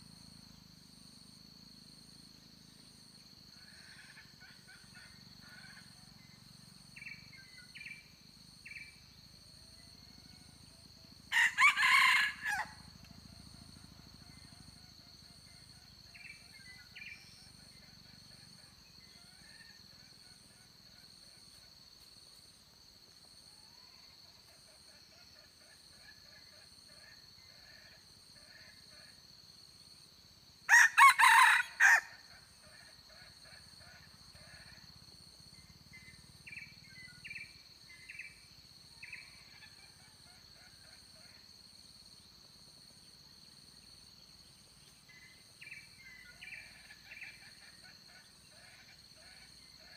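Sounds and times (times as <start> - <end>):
rooster crowing: 11.3 - 12.9, 30.7 - 32.3.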